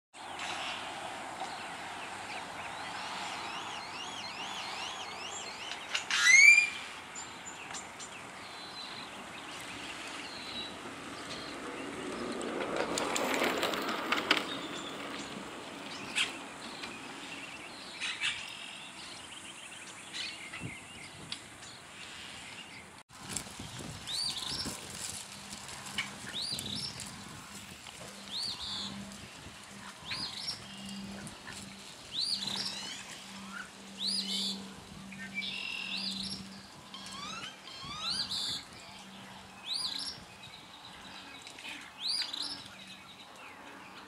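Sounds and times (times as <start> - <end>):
birds chirping: 0.2 - 23.0, 23.6 - 44.0
loud sharp bird call: 6.0 - 6.9.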